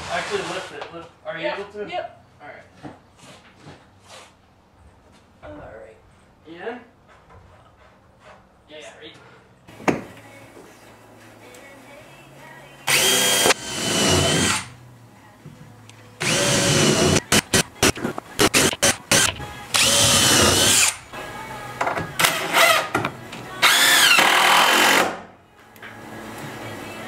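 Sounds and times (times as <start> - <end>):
cordless drill driving screws: 12.9 - 14.7, 16.2 - 21.0, 23.6 - 25.2.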